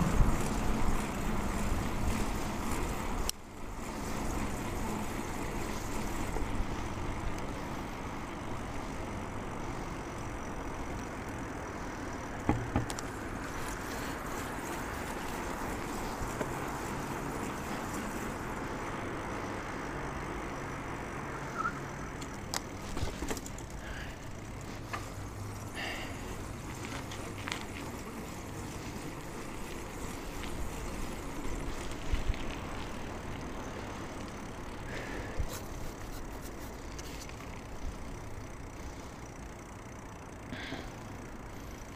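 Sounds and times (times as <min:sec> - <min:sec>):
road traffic noise: 0:00.0 - 0:41.9
short squeaks: 0:21.5 - 0:21.9.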